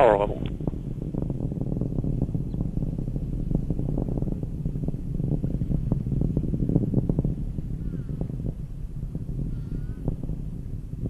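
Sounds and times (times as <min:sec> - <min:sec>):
rocket engine rumble and crackling: 0:00.0 - 0:11.0.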